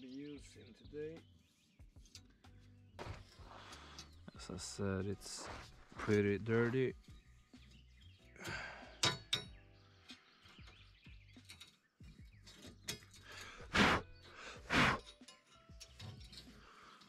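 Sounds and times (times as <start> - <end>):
tool scraping dirt from metal: 3.0 - 6.9, 11.4 - 17.0.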